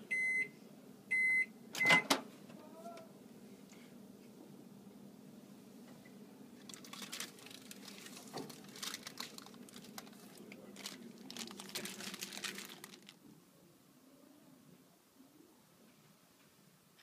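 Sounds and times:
parchment paper crinkling: 0:06.6 - 0:13.2.

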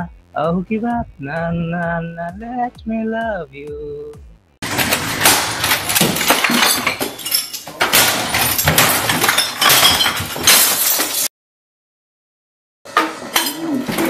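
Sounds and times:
glass and bottles shattering: 0:04.6 - 0:11.3
stick crashing into objects: 0:04.6 - 0:11.3.

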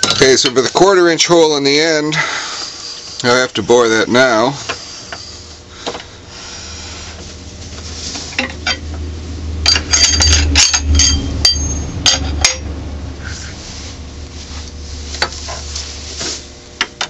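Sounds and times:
steady low hum: 0:00.0 - 0:17.0
metallic clinks and knocks: 0:09.6 - 0:12.7.

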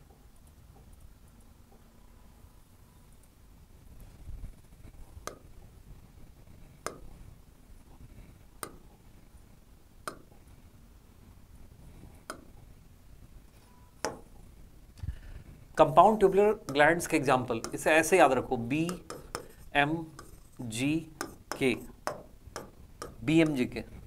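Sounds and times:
stylus tapping on glass screen: 0:06.8 - 0:07.1, 0:08.6 - 0:08.8, 0:10.1 - 0:10.3, 0:14.0 - 0:14.4, 0:16.1 - 0:20.5, 0:21.1 - 0:23.8.

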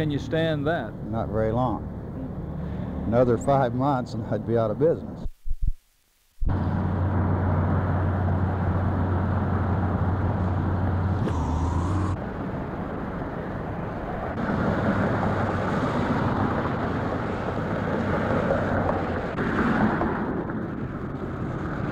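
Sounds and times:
traffic noise: 0:00.0 - 0:05.3, 0:06.5 - 0:21.9
rising engine whine: 0:06.5 - 0:13.1
low engine drone: 0:06.5 - 0:17.7.

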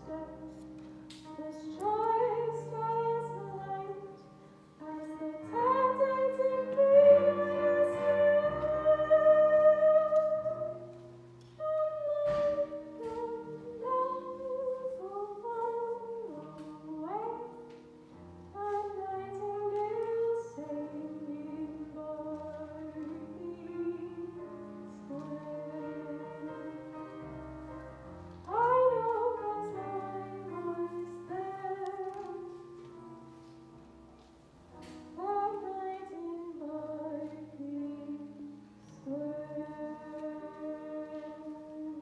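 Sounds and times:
woman singing a slow ballad: 0:01.3 - 0:04.2, 0:04.8 - 0:10.8, 0:11.6 - 0:17.6, 0:18.5 - 0:26.8, 0:35.2 - 0:42.0.

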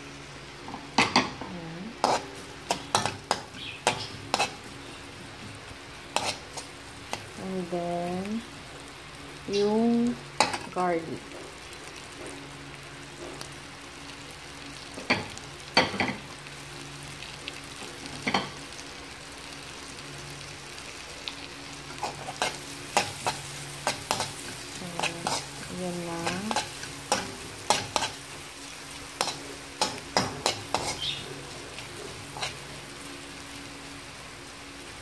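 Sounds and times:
onion and garlic sizzling in wok: 0:00.0 - 0:35.0
metal spoon scraping pan: 0:02.0 - 0:04.6, 0:06.1 - 0:07.2, 0:22.0 - 0:28.3, 0:29.2 - 0:31.2, 0:32.3 - 0:32.6.

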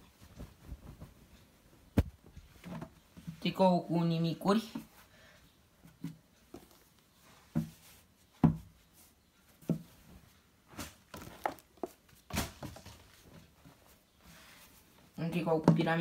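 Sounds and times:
t-shirts rustling on table: 0:00.0 - 0:03.4, 0:05.9 - 0:15.2.

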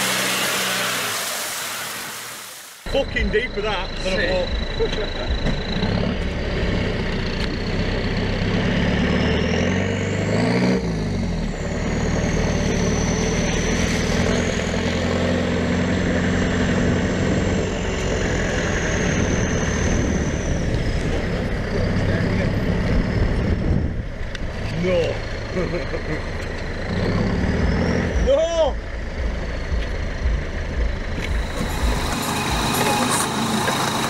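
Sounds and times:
off-road vehicle engine running: 0:02.8 - 0:34.0
thin high whine: 0:31.2 - 0:34.0.

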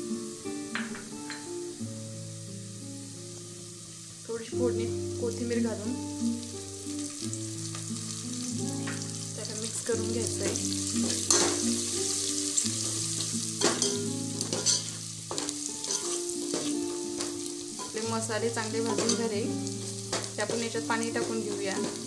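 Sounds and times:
food sizzling in hot oil: 0:00.0 - 0:22.0
ladle scraping pot: 0:13.6 - 0:18.0.

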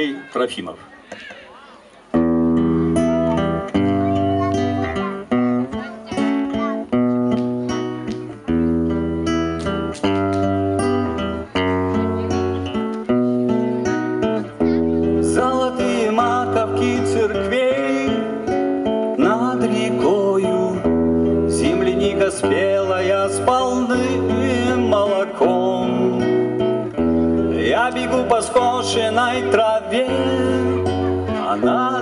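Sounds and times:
acoustic guitar strumming chords: 0:02.2 - 0:32.0
man singing: 0:15.1 - 0:26.8, 0:27.4 - 0:32.0.

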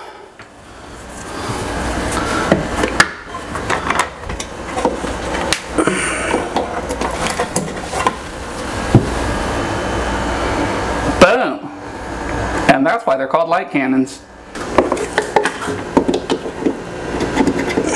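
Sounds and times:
steady low hum: 0:00.0 - 0:17.9.

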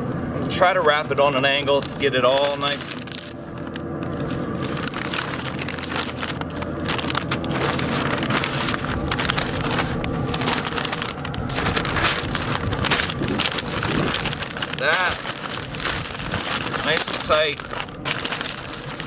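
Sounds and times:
paper crinkling and rustling: 0:01.1 - 0:19.0.

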